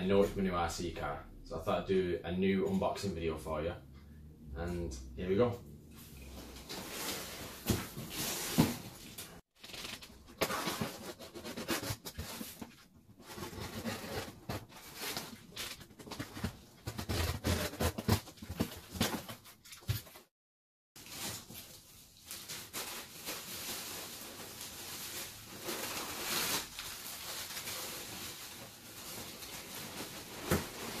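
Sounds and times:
cardboard rustling and scraping: 6.0s - 20.3s.

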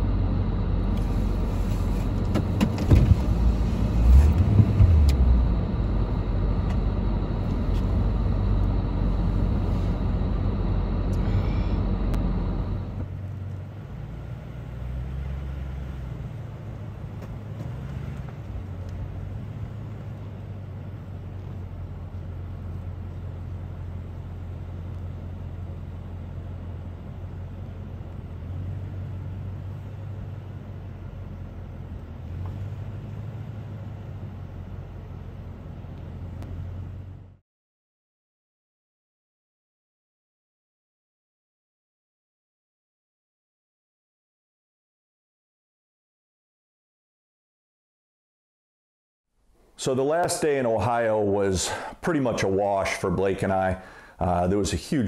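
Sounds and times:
vehicle engine idling: 0.0s - 37.4s, 49.6s - 55.0s
heavy low thumps: 4.3s - 6.9s.

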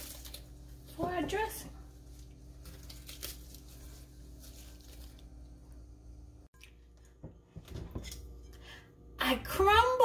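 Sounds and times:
bread crackling and rustling: 0.0s - 5.9s.

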